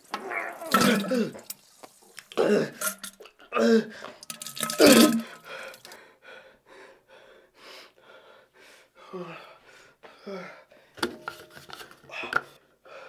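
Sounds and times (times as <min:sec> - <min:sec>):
man grunting and groaning: 0:02.4 - 0:02.8, 0:03.5 - 0:04.0
man breathing: 0:05.2 - 0:11.0.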